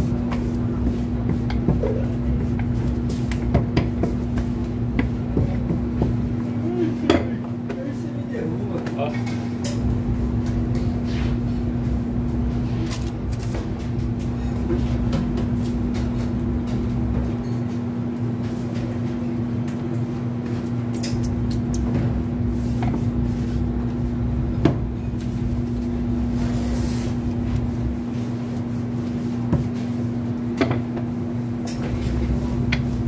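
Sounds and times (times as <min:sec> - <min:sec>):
kitchen machinery humming: 0:00.0 - 0:33.0.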